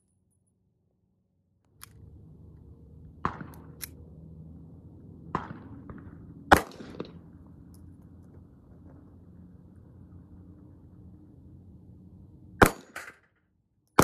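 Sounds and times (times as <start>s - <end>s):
steady low hum: 0.0s - 14.0s
pistol shots: 5.3s - 7.2s, 12.6s - 13.2s.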